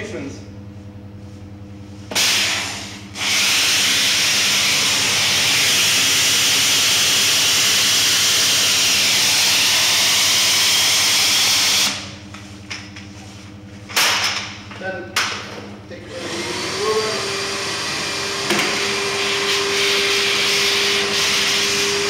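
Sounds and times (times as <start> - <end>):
pressure washer machine hum: 2.0 - 12.9, 16.0 - 22.0.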